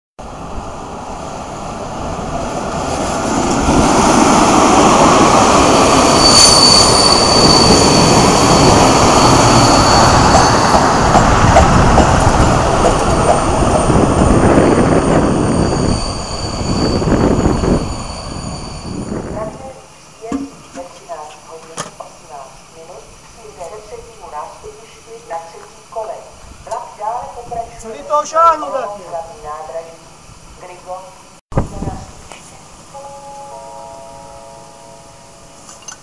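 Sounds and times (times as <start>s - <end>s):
train wheels clattering on rails: 3.3s - 19.6s
high brake squeal: 5.9s - 10.7s, 13.4s - 19.4s.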